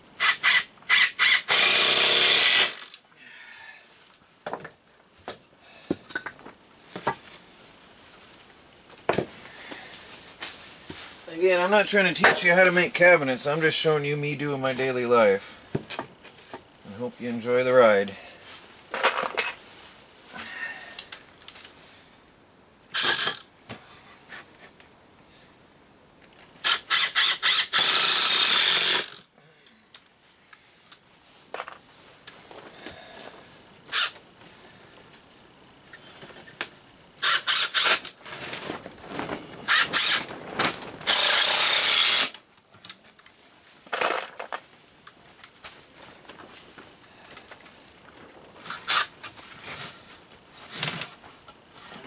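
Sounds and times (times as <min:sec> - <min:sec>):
impact driver hammering screws: 0:26.6 - 0:29.2, 0:37.2 - 0:38.1, 0:41.1 - 0:42.4.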